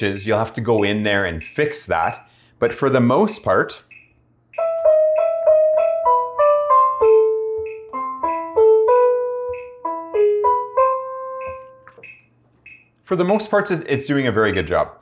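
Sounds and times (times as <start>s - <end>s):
metronome clicking: 0.6s - 1.7s, 3.8s - 6.1s, 7.0s - 9.9s, 11.4s - 13.4s, 14.4s - 14.8s
digital piano melody: 4.5s - 12.4s.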